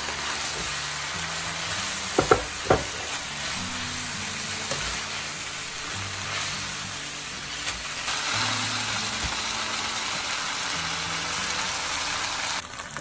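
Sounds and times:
noodles sizzling in a wok: 0:00.0 - 0:13.0
tongs knocking against pan: 0:02.2 - 0:03.0.

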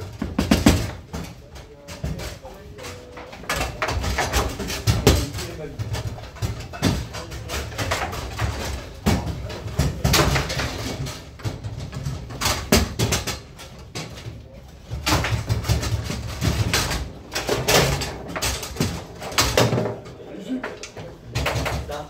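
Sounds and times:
table football rods knocking: 0:00.0 - 0:22.0.

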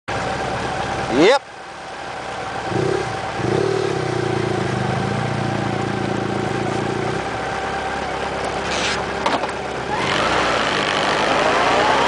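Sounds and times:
motorcycle engine pulling away: 0:02.6 - 0:07.4, 0:09.8 - 0:12.0.

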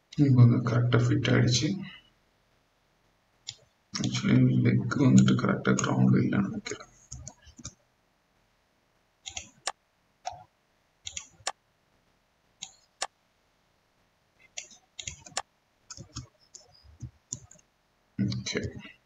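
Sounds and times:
computer mouse clicking: 0:03.5 - 0:04.2, 0:07.1 - 0:07.8, 0:09.2 - 0:11.6, 0:12.6 - 0:13.2, 0:14.4 - 0:17.7.

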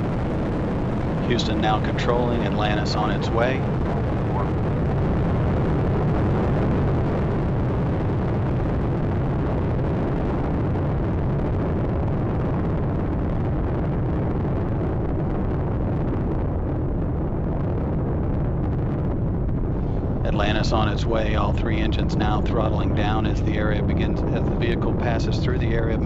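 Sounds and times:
rocket engines roaring: 0:00.0 - 0:26.0.

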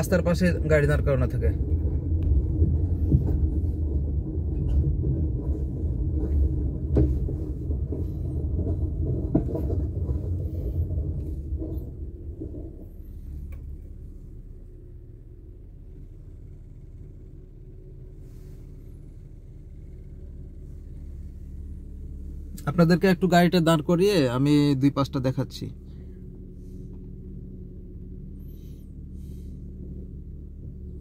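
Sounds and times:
car engine and road rumble: 0:00.0 - 0:31.0
car engine idling: 0:00.0 - 0:31.0
light knocks and rattles: 0:01.6 - 0:14.1.

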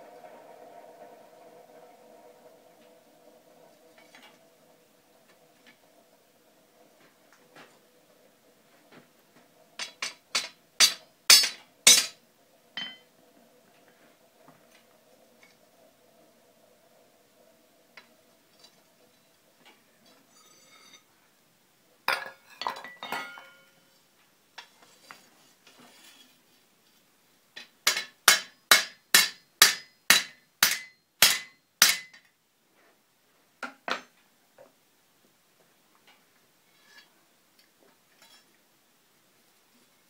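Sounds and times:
hammer striking rivet on anvil: 0:09.8 - 0:12.2, 0:27.9 - 0:32.2
metal clanking on anvil: 0:09.8 - 0:12.2, 0:12.8 - 0:13.1, 0:22.1 - 0:23.8, 0:27.9 - 0:32.2.

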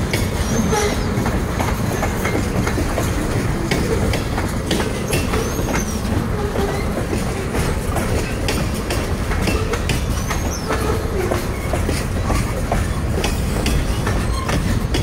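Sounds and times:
freight train rumbling: 0:00.0 - 0:15.0
wheels clicking on rails: 0:00.0 - 0:15.0
wheel squeal: 0:05.0 - 0:07.1, 0:09.5 - 0:15.0.

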